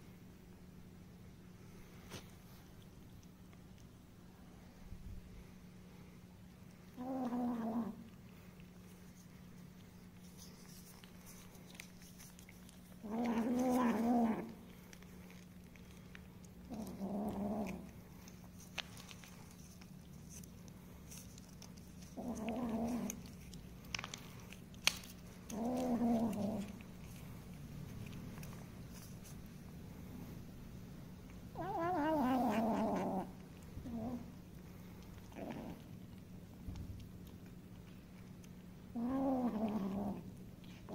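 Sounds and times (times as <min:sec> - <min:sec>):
cats meowing: 0:31.5 - 0:33.3.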